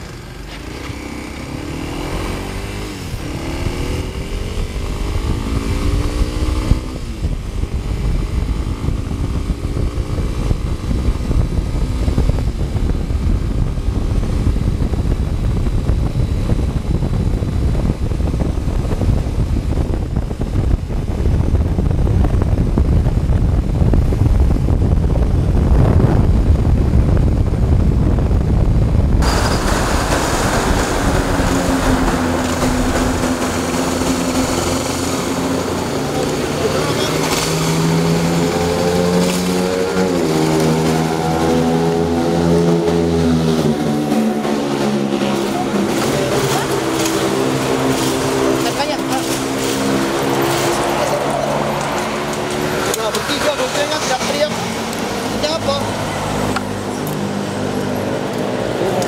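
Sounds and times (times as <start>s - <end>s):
motorcycle engine accelerating: 0.0s - 59.0s
wind rumble on microphone: 0.0s - 59.0s.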